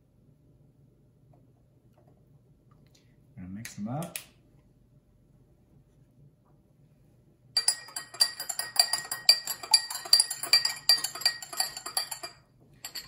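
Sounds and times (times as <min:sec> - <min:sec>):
metal spoons clinking against glass: 0:07.6 - 0:13.0.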